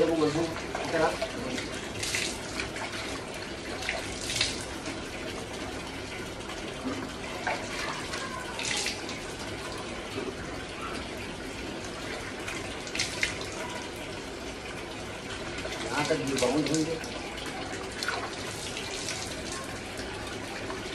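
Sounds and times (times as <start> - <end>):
tap water running into a basin: 0.0 - 20.9
water splashing onto face: 0.8 - 3.1, 3.8 - 4.7, 12.9 - 13.5.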